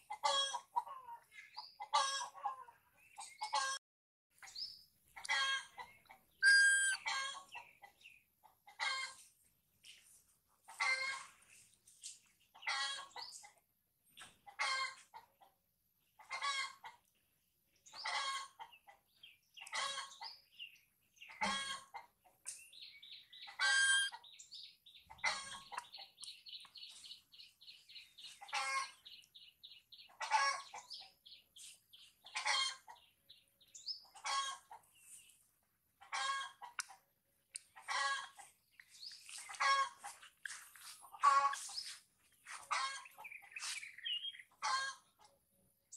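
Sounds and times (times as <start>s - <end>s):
short high chirps: 6.4s - 7.0s
baby monkey crying: 6.4s - 7.3s.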